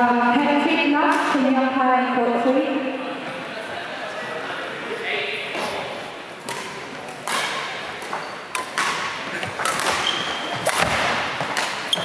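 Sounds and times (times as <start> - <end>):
racket hitting shuttlecock: 6.4 - 12.0.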